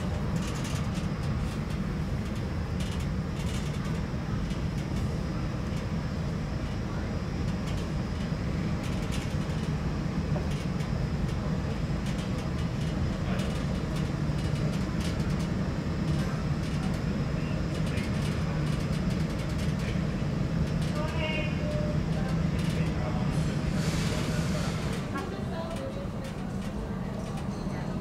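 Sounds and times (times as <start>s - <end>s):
steady low hum: 0.0s - 27.3s
faint clicks and knocks: 0.3s - 5.0s.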